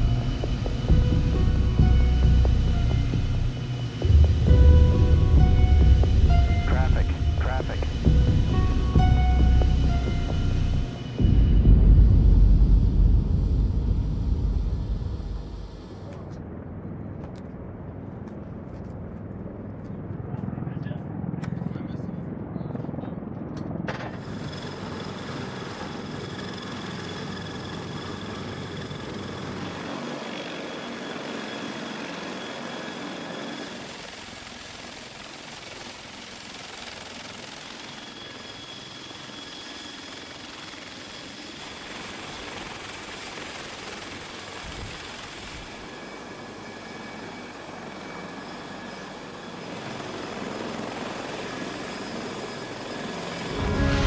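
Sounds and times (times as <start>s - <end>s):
steady high whine: 0.0s - 17.3s, 36.4s - 54.0s
helicopter rotor and engines: 0.0s - 54.0s.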